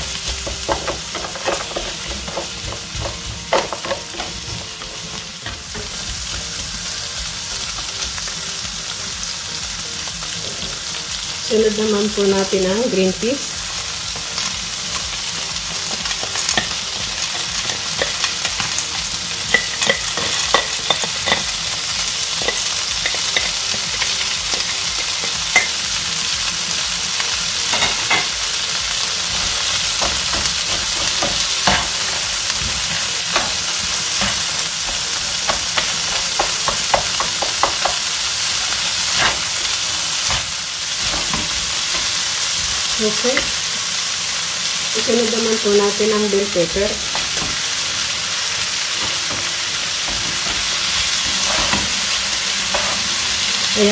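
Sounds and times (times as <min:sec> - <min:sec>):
spatula scraping and knocking pan: 0:00.0 - 0:06.6, 0:29.3 - 0:42.2, 0:48.9 - 0:53.1
vegetables sizzling in oil: 0:00.0 - 0:53.9.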